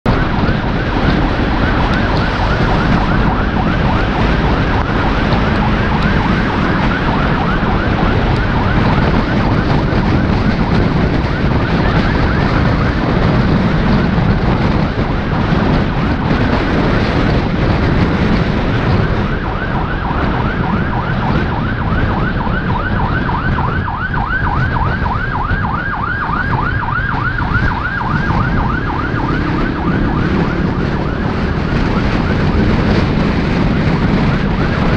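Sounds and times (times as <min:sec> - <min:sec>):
road and engine noise: 0:00.0 - 0:34.9
ambulance siren yelping: 0:00.1 - 0:34.9.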